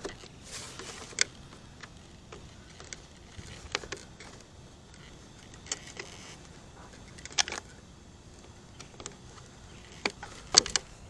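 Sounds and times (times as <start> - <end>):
plastic clicks and rattles: 8.4 - 11.0.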